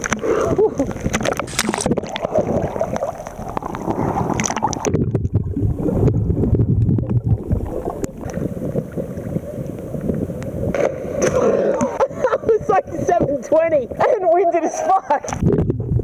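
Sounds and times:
sea water sloshing and splashing: 0:00.0 - 0:12.3
muffled underwater rumble: 0:00.0 - 0:14.2, 0:15.2 - 0:16.0.

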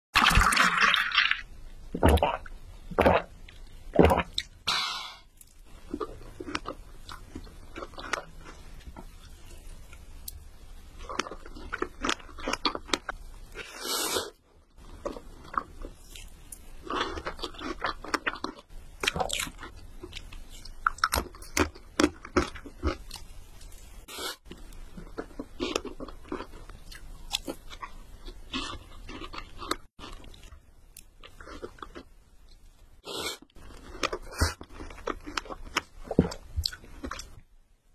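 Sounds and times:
person chewing cake: 0:05.4 - 0:13.6, 0:14.8 - 0:23.9, 0:24.5 - 0:32.6, 0:33.4 - 0:37.4.

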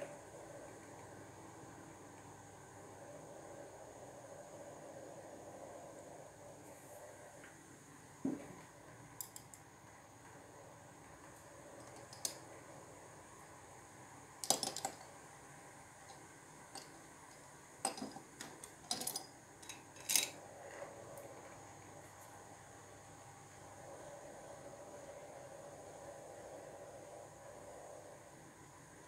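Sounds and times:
faint steady hiss: 0:00.0 - 0:29.0
small objects clicking on a desk: 0:09.2 - 0:09.7, 0:11.8 - 0:12.5, 0:14.4 - 0:15.2, 0:16.0 - 0:20.4.

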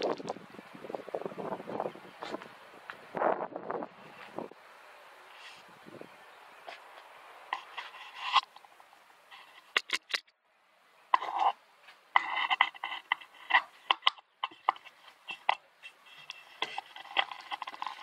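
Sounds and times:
rustling scrapes: 0:07.5 - 0:10.2, 0:11.2 - 0:18.0.

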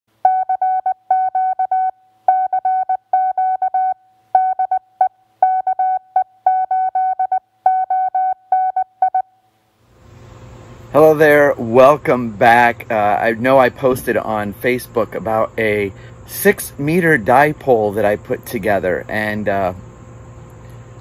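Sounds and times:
morse code beeps: 0:00.2 - 0:09.4.

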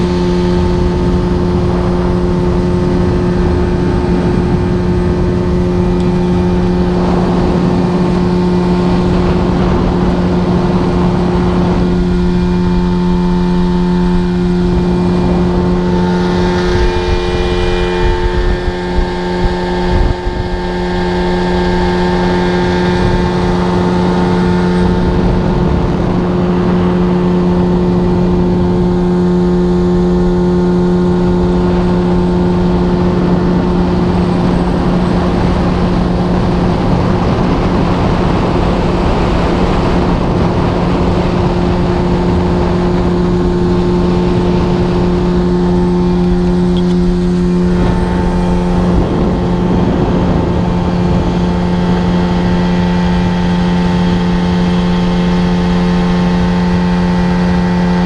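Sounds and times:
outboard motor running: 0:00.0 - 0:58.0
water rushing: 0:00.0 - 0:58.0
wind: 0:00.0 - 0:58.0.

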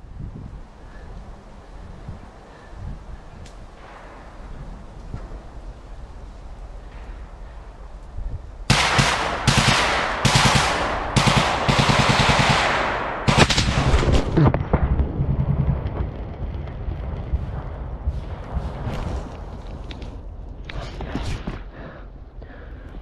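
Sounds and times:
machine-gun fire: 0:08.7 - 0:16.6.

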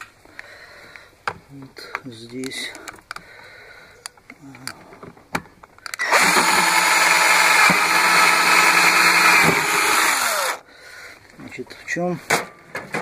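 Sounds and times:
electric drill drilling plastic: 0:06.0 - 0:10.6.

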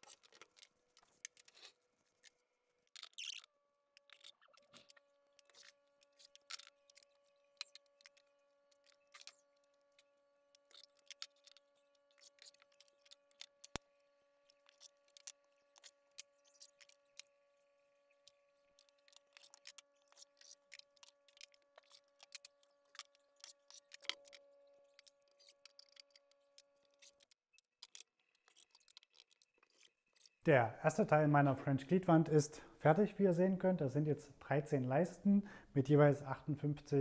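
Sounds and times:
faint steady hum: 0:28.2 - 0:37.0.

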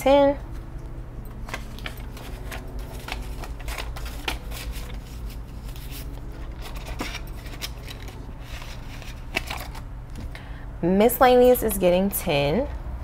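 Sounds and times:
low steady hum: 0:00.0 - 0:13.0
paper banknotes rustling: 0:01.3 - 0:09.9.

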